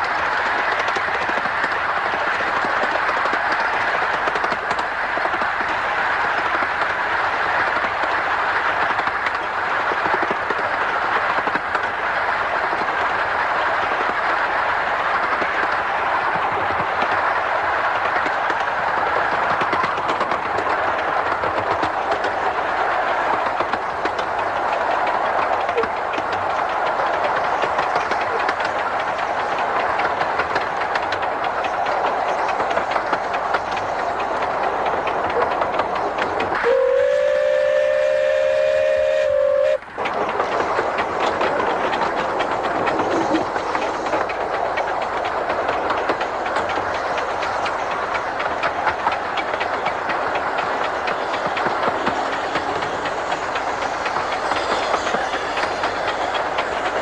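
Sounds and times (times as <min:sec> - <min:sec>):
steam locomotive clattering: 0:00.0 - 0:57.0
steam whistle: 0:36.6 - 0:39.9.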